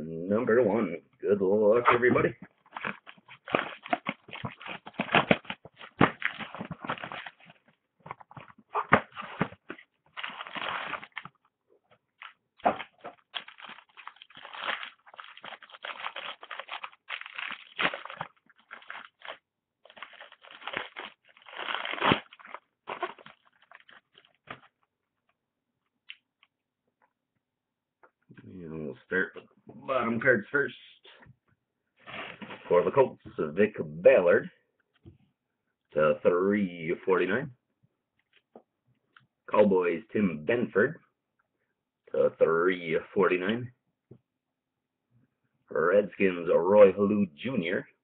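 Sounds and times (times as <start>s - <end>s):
plastic wrap and cardboard crinkling: 2.5s - 24.8s.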